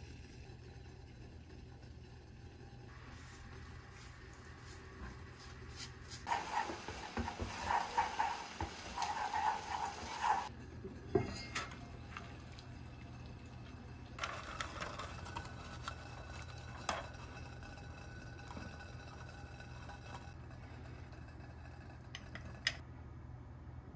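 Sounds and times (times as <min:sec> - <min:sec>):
busy choppy kitchen noise: 0:00.0 - 0:22.8
utensils clinking against dishes: 0:11.2 - 0:11.9.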